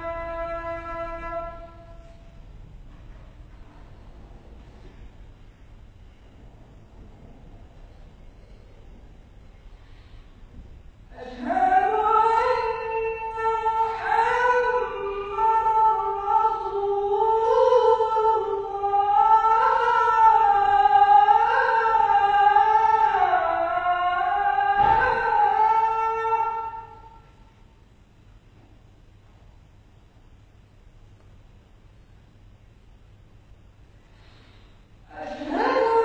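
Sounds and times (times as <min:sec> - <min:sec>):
man chanting call to prayer: 0:11.1 - 0:27.2.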